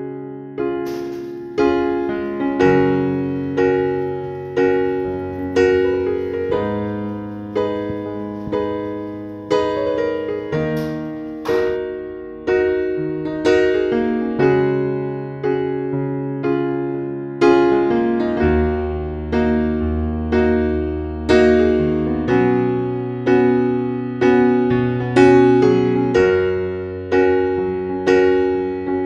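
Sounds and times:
electric piano slow chords: 0.0 - 29.0.

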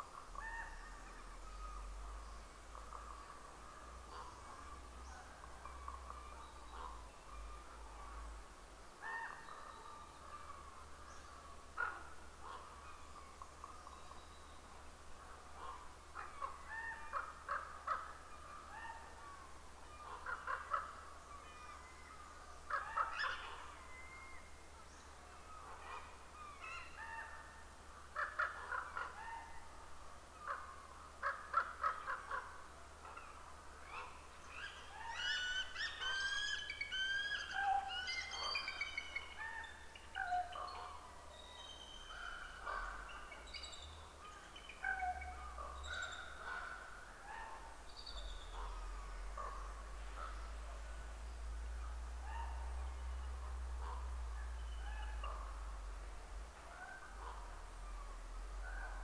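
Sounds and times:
bird calls: 0.0 - 8.3, 15.5 - 59.0.

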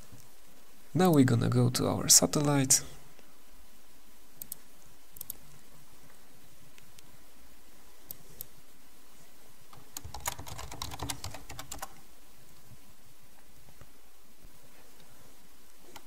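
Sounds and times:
computer keyboard typing: 9.7 - 12.0.

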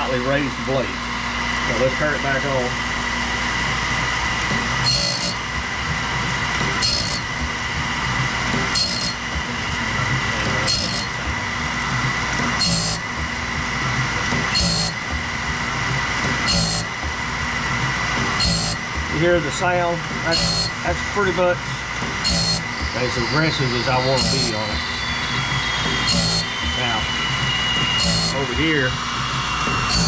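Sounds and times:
grinding wheel whine: 0.0 - 30.0
sharp grinding rasp: 4.7 - 9.6, 10.2 - 11.3, 12.5 - 15.3, 16.3 - 17.2, 18.2 - 19.2, 20.1 - 27.1, 27.8 - 28.5, 29.6 - 30.0.

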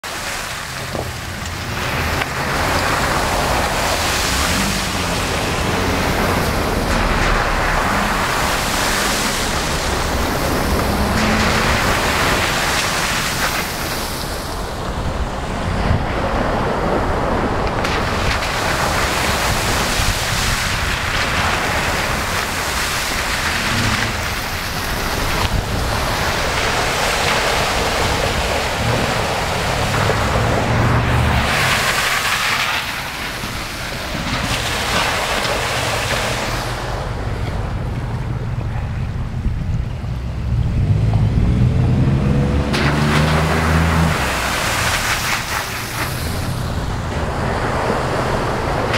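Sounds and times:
tyres splashing through water: 0.0 - 38.6, 40.4 - 48.9
car engines running: 0.0 - 48.9.

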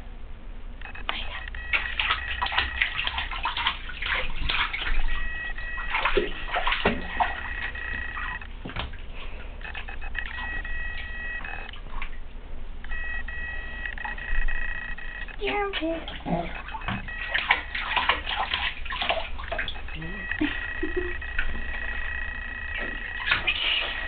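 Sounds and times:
high-pitched tone: 0.8 - 2.9, 5.0 - 8.5, 9.6 - 11.7, 12.8 - 18.3, 19.5 - 24.0
bathwater splashing: 1.0 - 12.3, 12.9 - 24.0.

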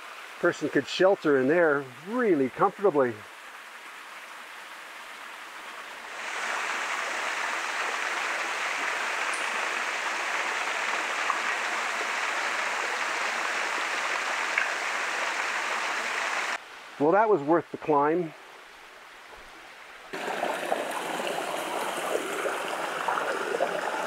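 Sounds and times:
waterfall splashing: 6.0 - 16.6, 20.1 - 24.0.

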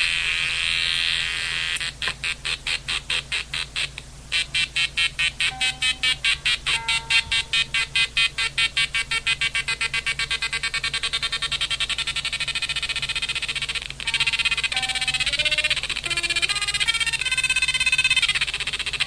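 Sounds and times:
pulsing fuzz guitar: 14.0 - 18.6.

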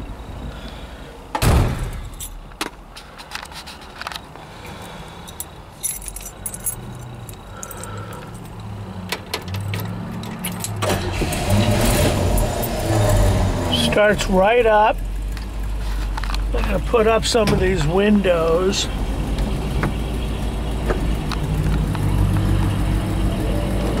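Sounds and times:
heavy thump: 1.3 - 2.1
keys jangling and clicking: 2.1 - 2.4, 5.2 - 10.8
car engine starting and running: 6.4 - 24.0.

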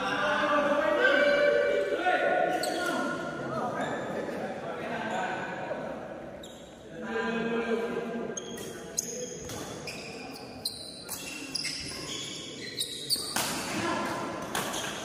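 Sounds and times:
shoes squeaking on court: 8.4 - 13.7, 14.4 - 15.0.

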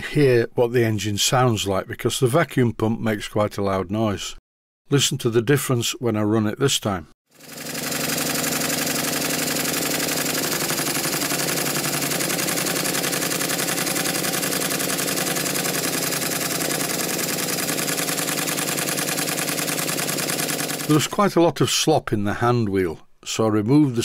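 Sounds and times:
model steam engine running: 7.4 - 21.1.

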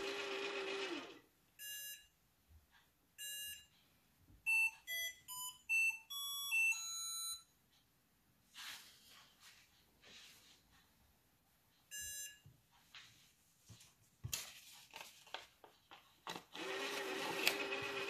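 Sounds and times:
toy beeping: 4.5 - 7.5.

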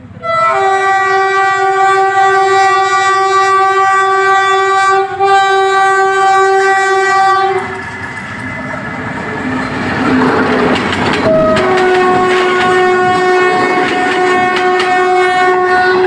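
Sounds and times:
train rumbling and clattering: 0.0 - 16.0
train horn blasts: 0.2 - 7.8, 11.2 - 16.0.

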